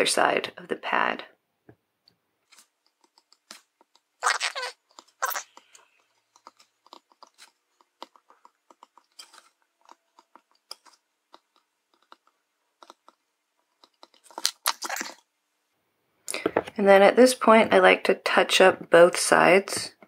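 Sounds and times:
solder crackling: 2.5s - 15.2s.

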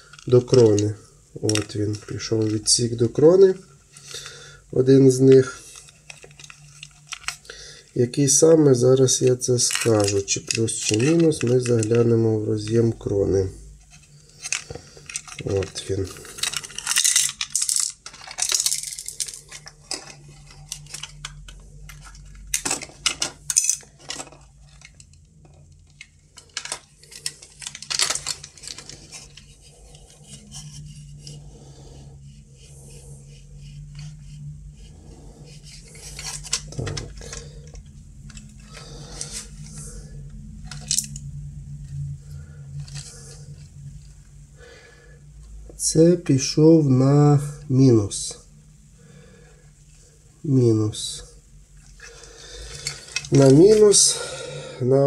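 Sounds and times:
clicks and clatter of small parts: 0.0s - 3.2s, 5.1s - 7.6s, 8.4s - 13.0s, 13.8s - 31.4s, 35.5s - 39.9s, 40.6s - 42.0s, 42.7s - 43.7s, 51.8s - 54.2s
low steady hum: 0.0s - 55.0s.

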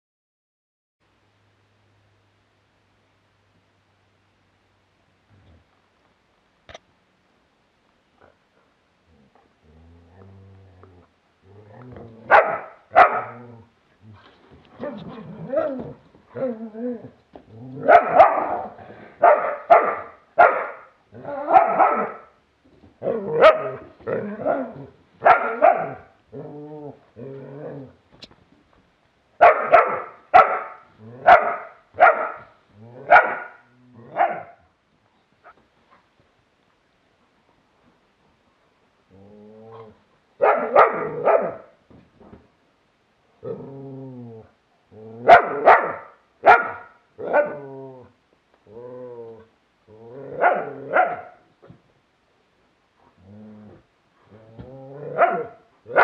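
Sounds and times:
dogs barking: 12.3s - 13.4s, 17.8s - 20.9s, 21.5s - 22.3s, 23.3s - 23.8s, 25.2s - 26.1s, 29.4s - 33.6s, 34.2s - 34.6s, 40.4s - 41.7s, 45.3s - 47.6s, 50.4s - 51.4s, 55.1s - 56.0s.

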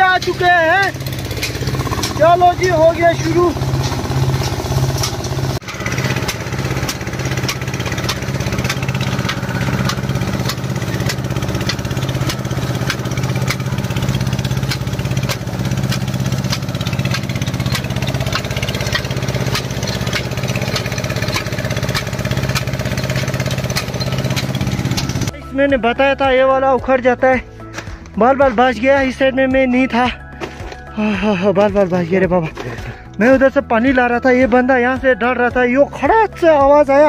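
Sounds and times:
grain thresher threshing straw: 0.0s - 25.4s, 30.3s - 33.6s
small stationary engine running: 0.0s - 25.4s.

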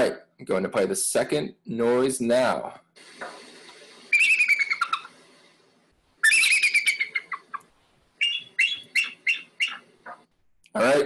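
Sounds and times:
eagle calling: 4.1s - 5.2s, 6.2s - 10.3s.

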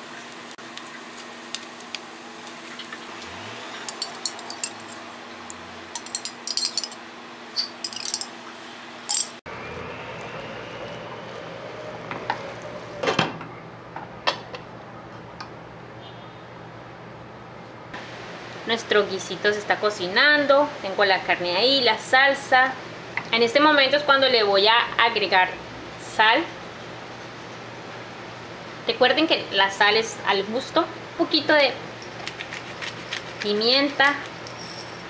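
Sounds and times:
glass lid clinking: 3.8s - 5.1s, 6.0s - 7.0s, 7.6s - 8.4s, 9.1s - 9.4s
utensils scraping a frying pan: 32.4s - 35.0s.

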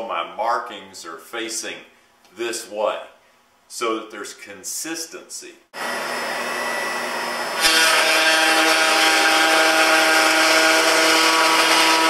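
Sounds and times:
router bit cutting wood: 5.8s - 12.0s
router whining: 5.8s - 12.0s.

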